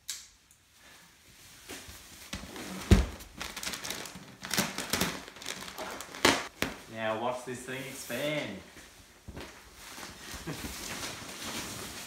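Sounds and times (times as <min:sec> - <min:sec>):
plastic wrapping crinkling: 0:02.3 - 0:06.9, 0:09.3 - 0:12.0.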